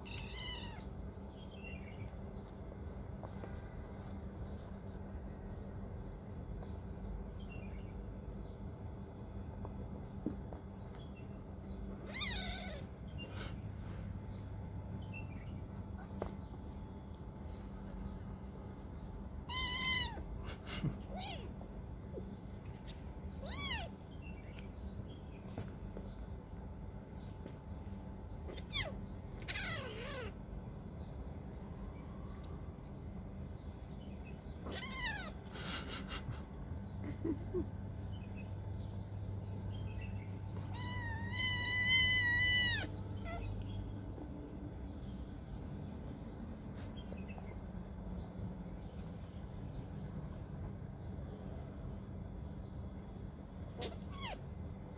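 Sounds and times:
kittens meowing: 0:00.0 - 0:01.0, 0:11.9 - 0:13.4, 0:19.4 - 0:24.0, 0:28.5 - 0:30.4, 0:34.6 - 0:35.5, 0:40.6 - 0:44.0, 0:53.7 - 0:54.5.

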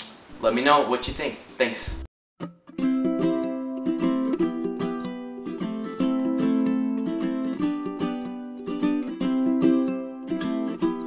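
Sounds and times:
plucked string instrument: 0:02.4 - 0:11.0.

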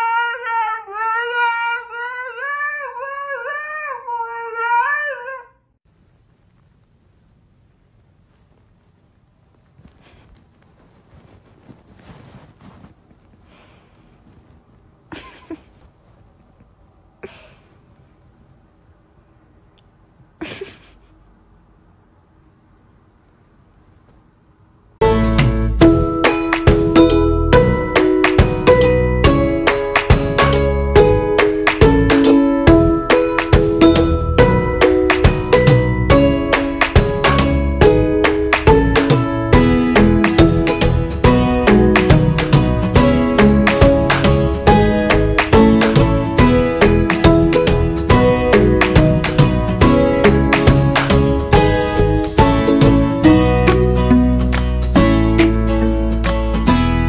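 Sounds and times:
dog howling: 0:00.0 - 0:05.6
faint low background noise: 0:05.4 - 0:57.0
strummed string chords: 0:25.0 - 0:57.0.

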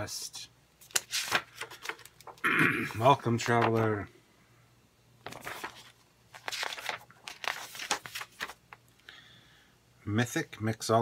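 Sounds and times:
paper rustling and crinkling: 0:00.8 - 0:02.4, 0:03.1 - 0:03.9, 0:05.2 - 0:08.8.

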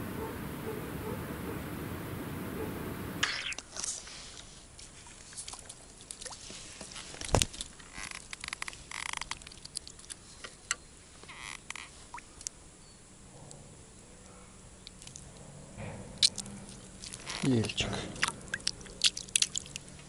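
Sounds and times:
fish splashing: 0:04.9 - 0:10.2, 0:16.2 - 0:20.0.

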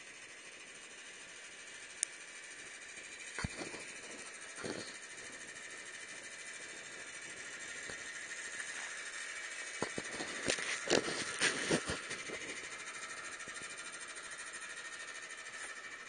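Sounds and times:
chairlift wheels clacking: 0:05.7 - 0:13.8.

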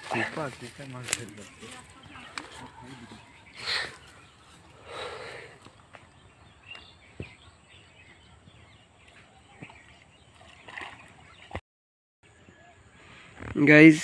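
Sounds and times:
faint bird chirps: 0:12.3 - 0:13.5.

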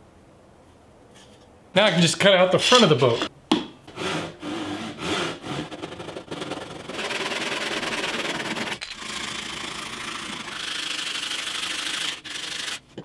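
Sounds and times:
handsaw cutting wood: 0:03.9 - 0:12.9
sanding block rasping on wood: 0:04.1 - 0:12.8.

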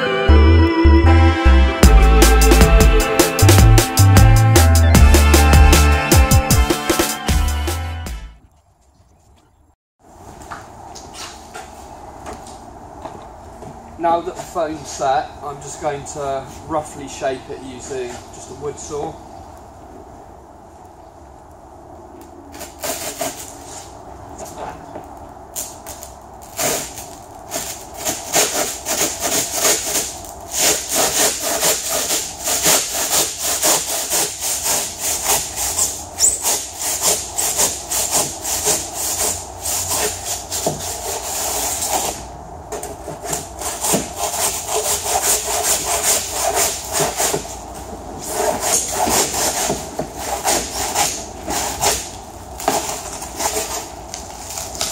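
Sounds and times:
handsaw cutting foam: 0:22.6 - 0:23.5, 0:26.6 - 0:42.2, 0:43.2 - 0:47.6, 0:48.2 - 0:53.9.

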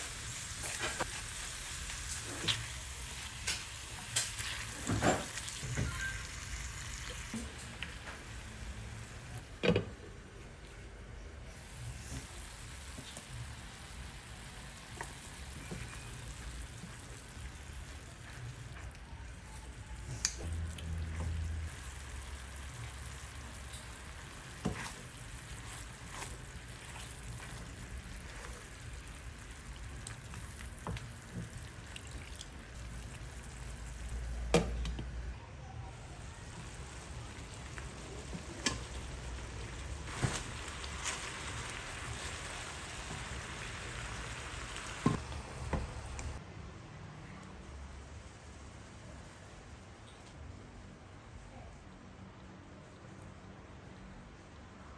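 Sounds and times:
chicken sizzling in a pan: 0:00.0 - 0:09.1, 0:20.5 - 0:31.9, 0:35.9 - 0:45.2.

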